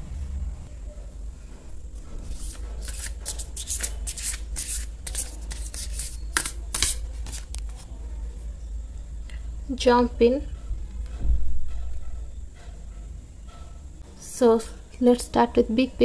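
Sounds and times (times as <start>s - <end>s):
cards being shuffled: 2.3s - 7.9s.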